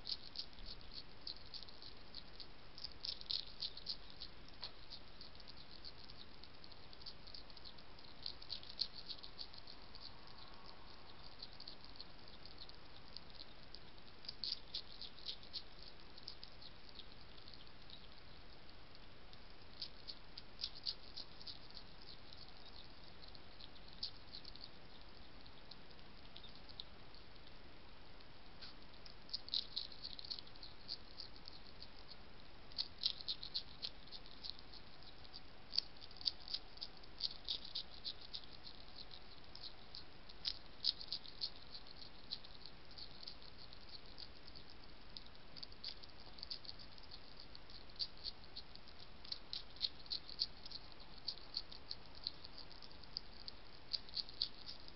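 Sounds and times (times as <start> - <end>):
hedgehog crunching and chewing: 0.0 - 54.9
steady hiss: 0.0 - 54.9.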